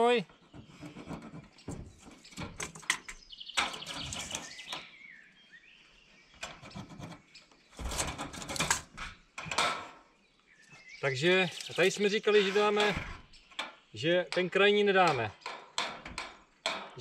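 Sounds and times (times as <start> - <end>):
birds chirping: 0.0 - 17.0
clicks and knocks on steel sheeting: 0.3 - 4.9, 6.3 - 10.1, 12.8 - 17.0.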